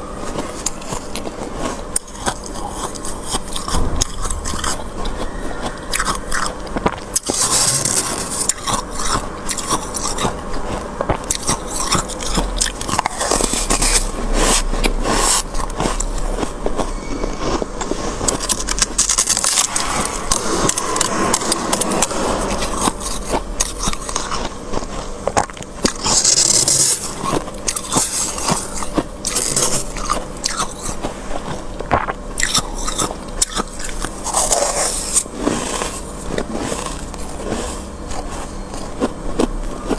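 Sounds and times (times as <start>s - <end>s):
freezer frost being scraped: 5.9s - 25.0s, 25.8s - 31.0s, 32.4s - 39.1s.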